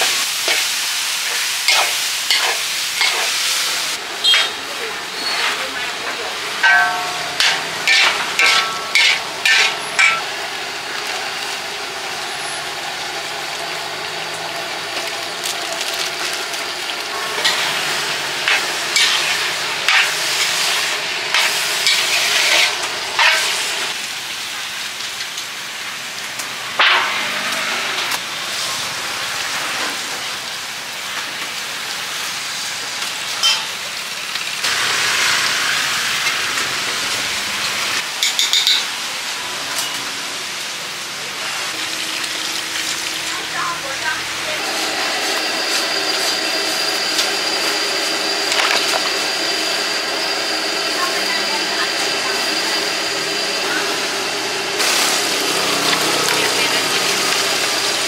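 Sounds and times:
steady sizzle: 0.0 - 58.0
metal spatula scraping a wok: 0.4 - 3.6, 4.2 - 5.9, 6.6 - 10.3, 17.2 - 23.7.

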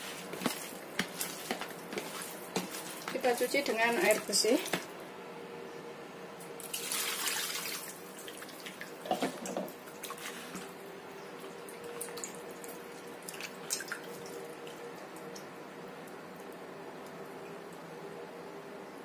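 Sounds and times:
water splashing in a bowl: 0.1 - 4.9, 6.6 - 10.7, 11.4 - 15.5.

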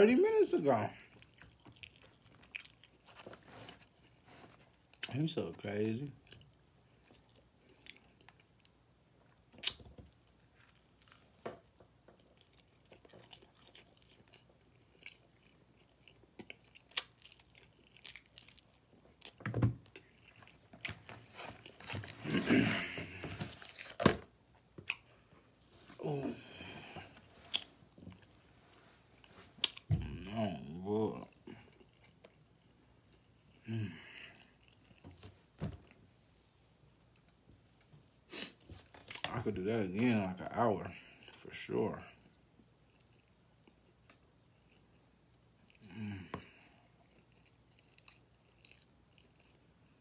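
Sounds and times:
close-up chewing: 1.0 - 5.2, 6.2 - 22.4, 26.9 - 30.2, 31.1 - 33.6, 42.8 - 50.0.

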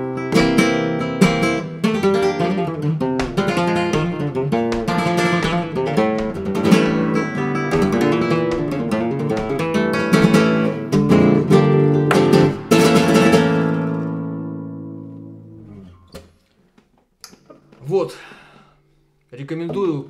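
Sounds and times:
flamenco guitar strumming: 0.0 - 16.4
faint taps: 3.2 - 7.0, 7.7 - 10.0.

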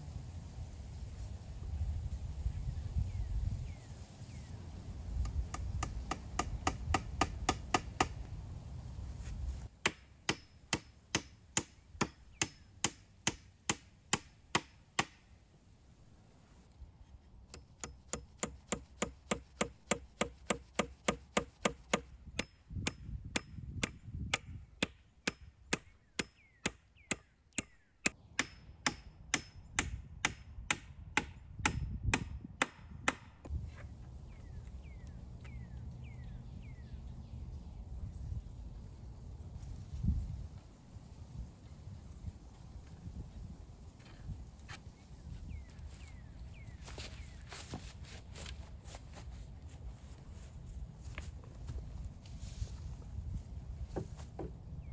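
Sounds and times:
hatchet hammering nails into wood: 5.2 - 8.2, 9.8 - 15.2, 17.5 - 33.4.

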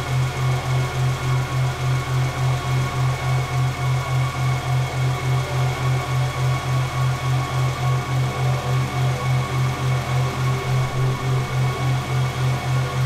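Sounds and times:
pulsing mechanical hum: 7.6 - 13.0.

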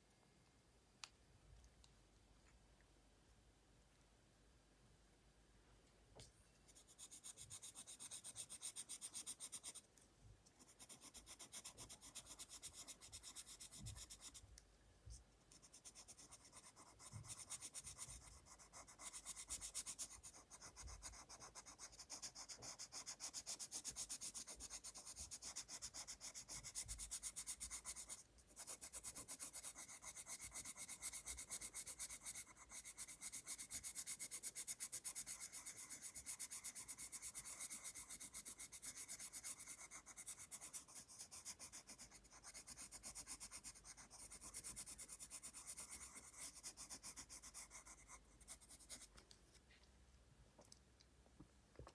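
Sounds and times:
pencil shading on paper: 6.7 - 9.9, 10.6 - 14.6, 15.5 - 49.2.

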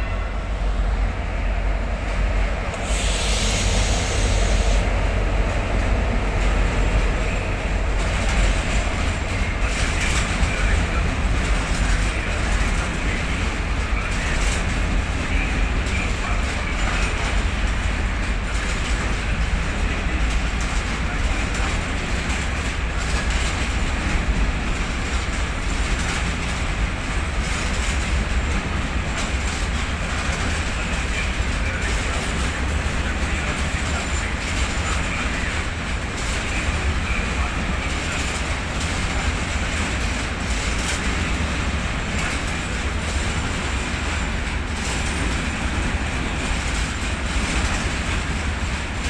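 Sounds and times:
rail clicks: 0.0 - 49.0
train wheels rumbling on rails: 0.0 - 49.0.

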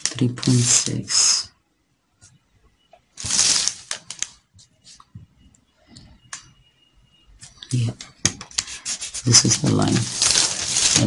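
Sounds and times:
paper rustling: 3.2 - 4.4, 8.5 - 11.0.

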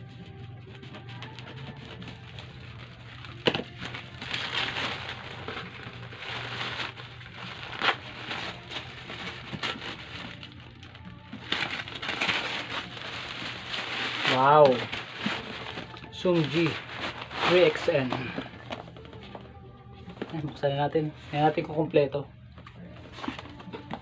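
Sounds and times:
low steady hum: 0.0 - 24.0
paper rustling and tearing: 0.7 - 19.3.

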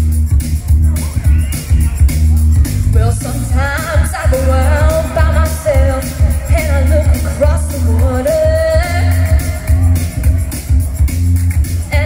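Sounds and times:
amplified music with bass beat: 0.0 - 12.0
woman singing pop song: 2.9 - 10.7.

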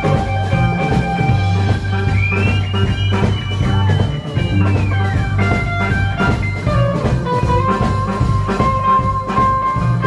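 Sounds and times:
drums: 0.0 - 10.0
electric guitar lead with bends: 0.0 - 10.0
upright bass: 0.0 - 10.0.

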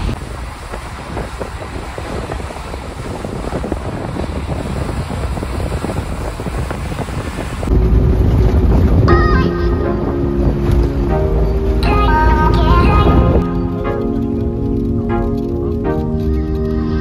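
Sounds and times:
car rumbling on hail-covered road: 0.0 - 9.1
wind buffeting microphone: 0.0 - 17.0
music: 7.7 - 17.0.

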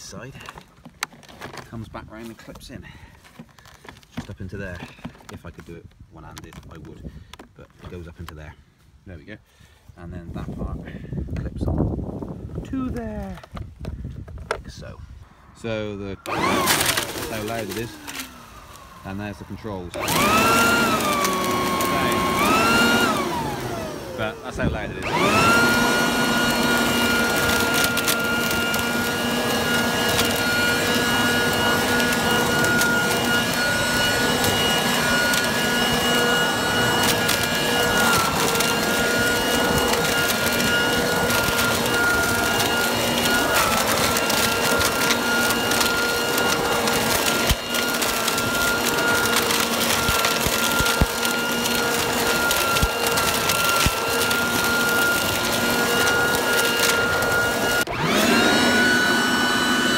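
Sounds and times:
blower-vac motor whine: 15.8 - 59.9
dry leaves crackling: 16.3 - 24.1, 25.0 - 58.2.

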